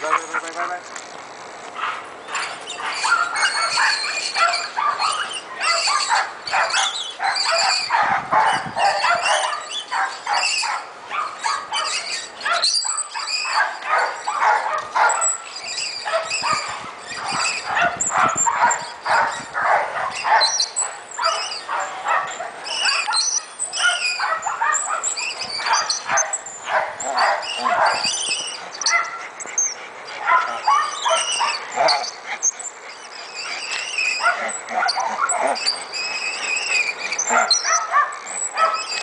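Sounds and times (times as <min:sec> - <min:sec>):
dogs barking and yipping: 0:00.0 - 0:00.8, 0:01.6 - 0:39.0.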